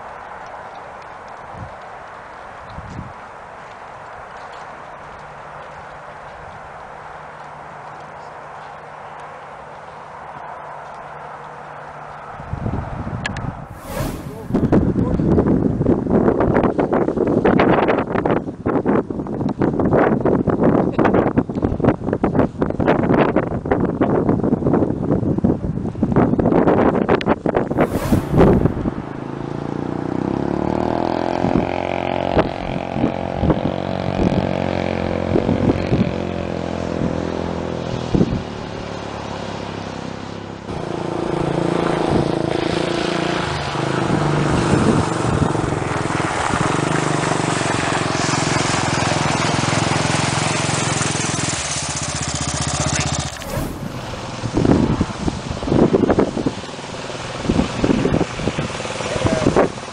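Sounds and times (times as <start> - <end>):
wind noise: 2.7 - 3.2, 12.4 - 29.8, 53.1 - 56.6.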